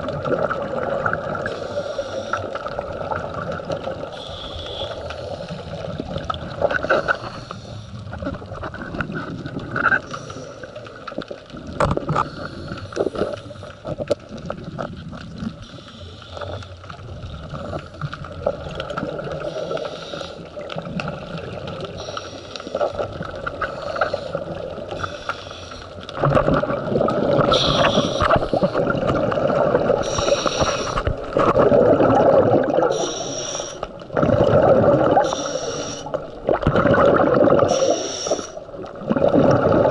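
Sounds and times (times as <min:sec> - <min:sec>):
gurgling exhaled bubbles: 0:00.0 - 0:15.8, 0:16.8 - 0:25.2, 0:25.8 - 0:39.9
regulator breathing underwater: 0:01.4 - 0:02.7, 0:04.1 - 0:05.8, 0:06.8 - 0:08.1, 0:12.1 - 0:13.8, 0:15.6 - 0:16.8, 0:19.4 - 0:20.6, 0:21.9 - 0:26.0, 0:27.3 - 0:31.1, 0:32.8 - 0:34.0, 0:34.7 - 0:36.3, 0:37.4 - 0:38.6.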